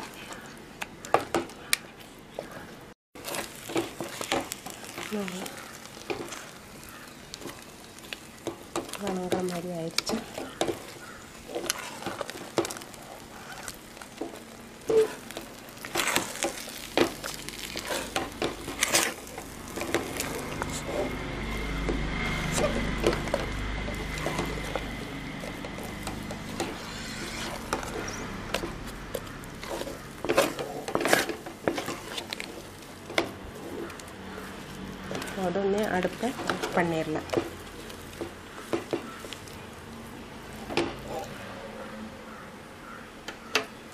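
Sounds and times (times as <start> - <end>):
hand kneading dough squishing: 0.0 - 39.8
low rumble with high tone: 19.2 - 30.9.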